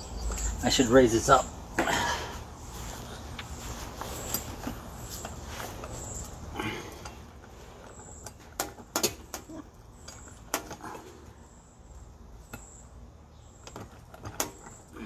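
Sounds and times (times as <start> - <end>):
sharp metallic clicks and knocks: 7.8 - 10.8.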